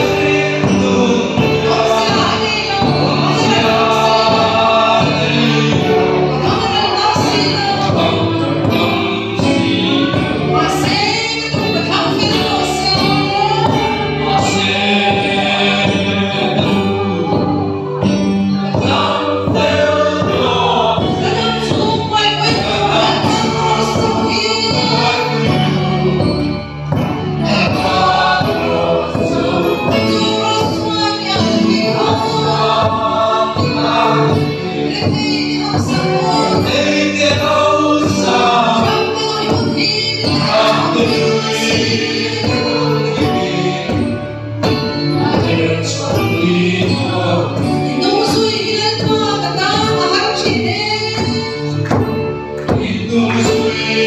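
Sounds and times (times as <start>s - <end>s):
woman singing into a microphone: 0.0s - 8.4s, 10.0s - 16.3s, 20.9s - 25.6s, 29.8s - 37.4s, 38.0s - 43.7s, 47.6s - 52.0s
congregation singing: 0.0s - 54.0s
regular beat: 0.0s - 54.0s.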